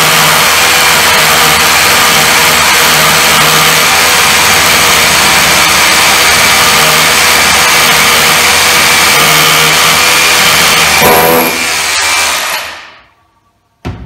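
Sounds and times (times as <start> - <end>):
rotary hammer drilling into concrete: 0.0 - 13.0.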